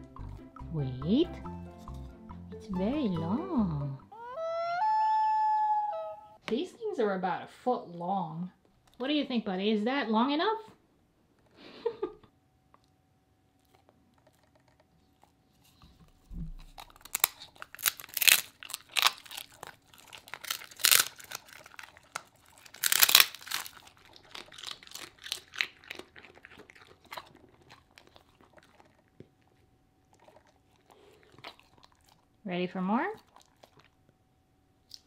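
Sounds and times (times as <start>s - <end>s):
dog crunching a dry treat: 13.6s - 32.4s, 33.0s - 34.2s.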